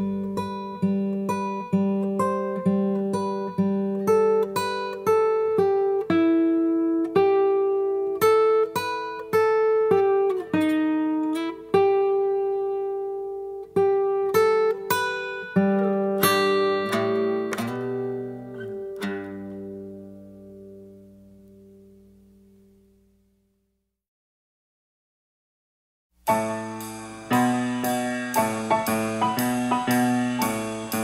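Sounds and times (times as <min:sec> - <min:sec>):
plucked guitar notes: 0:00.0 - 0:22.0, 0:26.2 - 0:31.0
guitar chord ringing: 0:10.0 - 0:22.0, 0:26.2 - 0:31.0.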